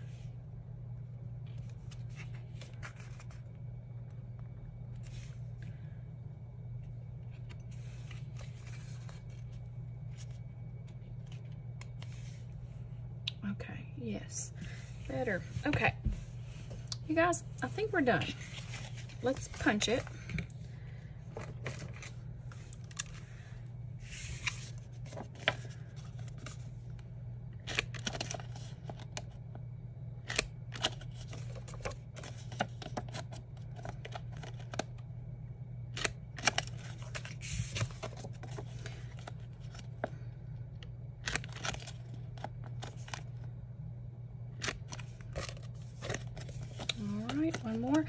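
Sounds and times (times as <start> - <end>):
steady low hum: 0.0 - 48.0
paper handling: 1.5 - 3.5, 7.2 - 12.5, 18.2 - 20.4, 21.0 - 23.4, 24.0 - 27.0, 27.6 - 29.4, 30.3 - 35.0, 35.9 - 40.3, 41.2 - 43.5, 44.6 - 48.0.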